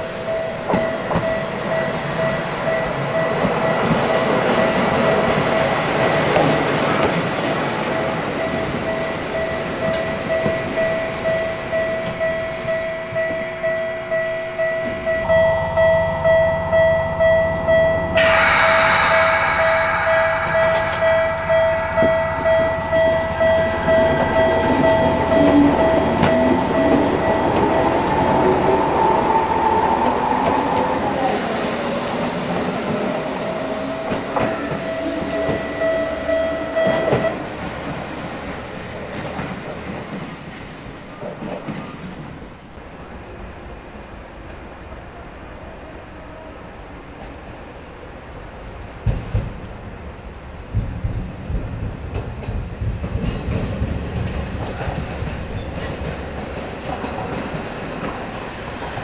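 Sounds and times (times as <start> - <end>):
steady ringing tone: 13.2 - 28.1
electric train motor whine: 18.1 - 36.8
loud rush of noise: 18.2 - 25.3.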